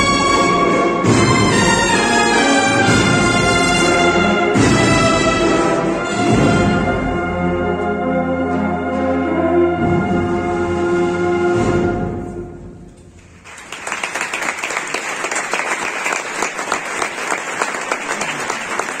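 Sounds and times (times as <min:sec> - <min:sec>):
brass band chord with echo: 0:00.0 - 0:12.8
audience applauding: 0:13.4 - 0:19.0.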